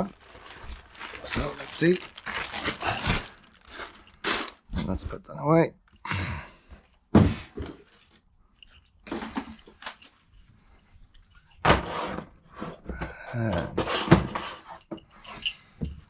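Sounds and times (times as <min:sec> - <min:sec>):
packaging being handled: 0:00.0 - 0:04.8
knocks and crunching: 0:00.0 - 0:05.0.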